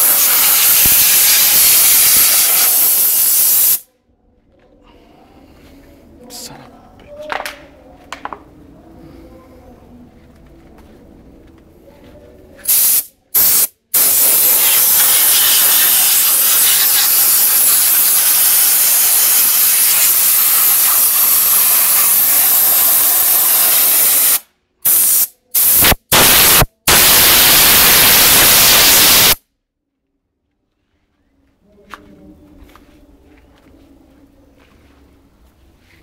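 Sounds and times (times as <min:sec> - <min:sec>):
compressed air hissing: 0:00.0 - 0:03.8, 0:12.6 - 0:29.4.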